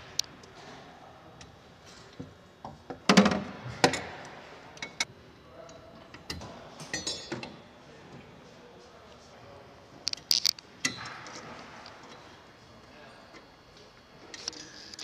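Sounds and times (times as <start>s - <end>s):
high ringing clink: 6.9s - 7.4s.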